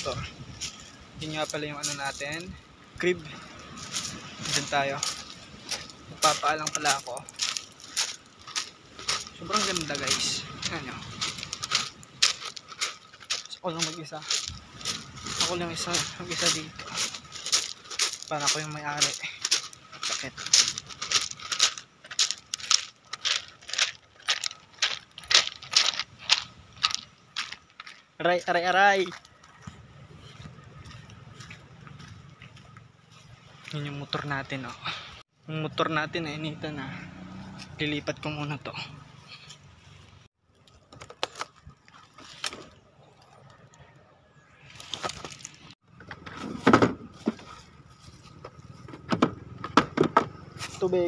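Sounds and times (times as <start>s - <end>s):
footsteps crunching on pebbles: 0.0s - 2.6s, 3.2s - 34.7s, 44.7s - 45.8s
scooter handling clicks and knocks: 48.4s - 50.4s.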